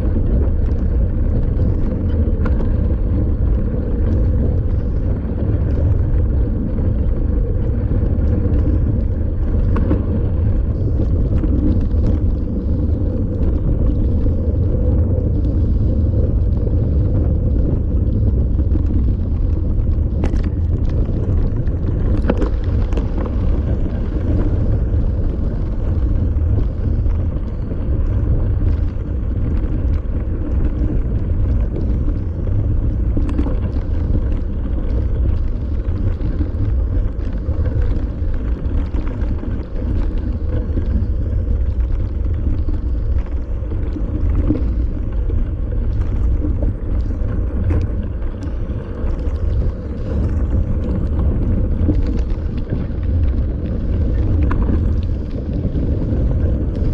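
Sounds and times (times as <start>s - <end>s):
bike rattling: 0.0s - 56.9s
wind buffeting microphone: 0.0s - 56.9s.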